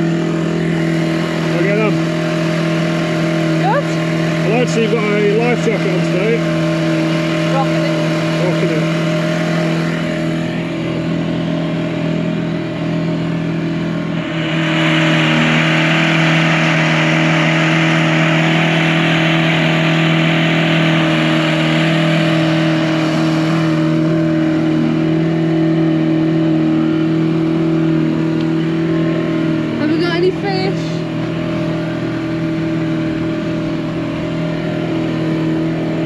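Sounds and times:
outboard motor running: 0:00.0 - 0:36.0.

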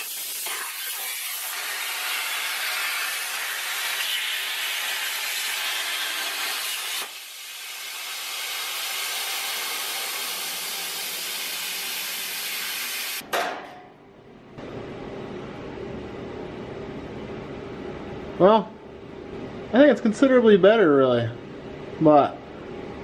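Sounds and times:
plasma cutter arc hissing: 0:00.0 - 0:13.2
torch air hissing: 0:00.0 - 0:13.2.

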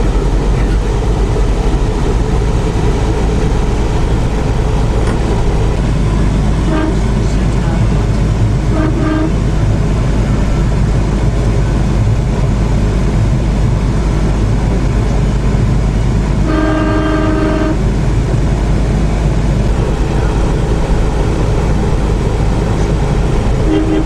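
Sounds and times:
vehicle engine and road rumble: 0:00.0 - 0:24.0
car horn: 0:06.6 - 0:07.4, 0:08.7 - 0:09.4, 0:16.4 - 0:17.9, 0:23.6 - 0:24.0.

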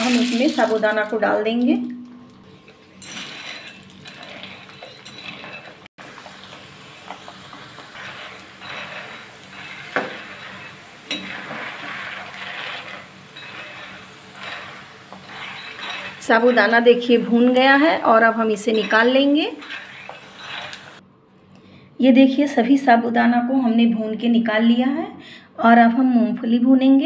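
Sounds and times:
ladle scraping pan: 0:03.0 - 0:21.0.

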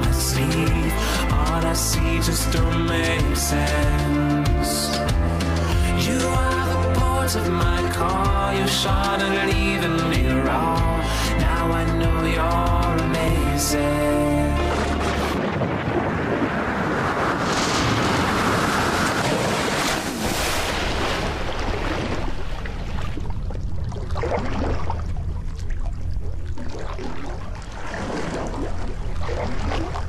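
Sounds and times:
background song: 0:00.0 - 0:15.4
diver's exhaled air bubbles: 0:14.6 - 0:30.0
water rushing against camera housing: 0:14.6 - 0:30.0.

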